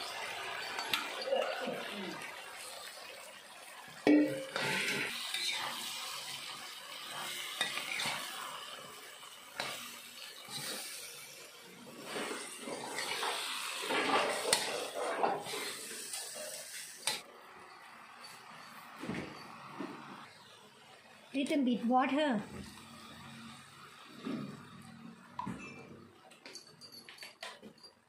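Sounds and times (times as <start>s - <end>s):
food sizzling: 0.0s - 26.0s
spatula scraping frying pan: 4.1s - 8.8s, 9.5s - 17.2s.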